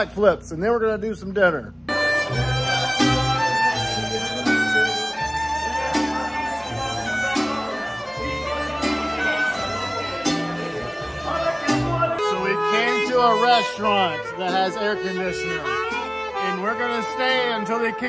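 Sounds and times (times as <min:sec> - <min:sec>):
mariachi band playing: 0:01.9 - 0:18.0
violins playing melody: 0:01.9 - 0:18.0.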